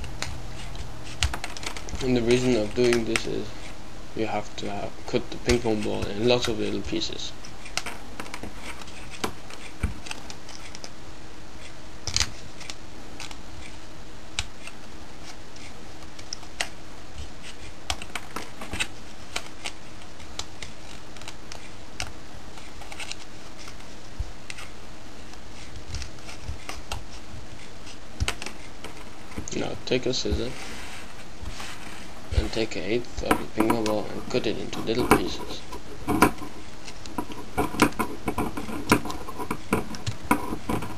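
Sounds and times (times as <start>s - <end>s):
scissors snipping plastic: 0.0s - 3.3s
faint steady hum: 0.0s - 40.9s.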